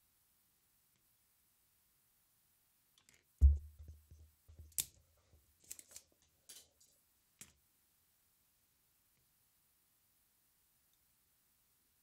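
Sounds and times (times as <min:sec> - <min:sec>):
dull thump on workbench: 0:03.4 - 0:04.0.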